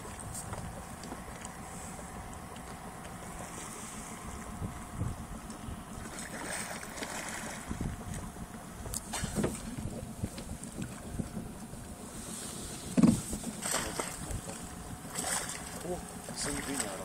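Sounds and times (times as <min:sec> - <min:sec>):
wind buffeting microphone: 0:04.0 - 0:17.0.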